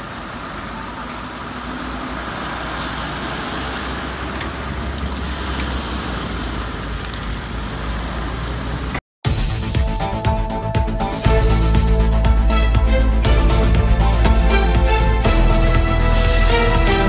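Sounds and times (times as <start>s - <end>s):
fire truck engine rumbling: 0.0s - 9.0s
street noise: 0.0s - 9.0s.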